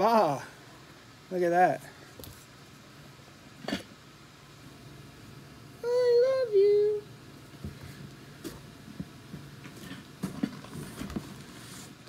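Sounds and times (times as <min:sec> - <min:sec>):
person humming high-pitched: 0:05.8 - 0:07.1.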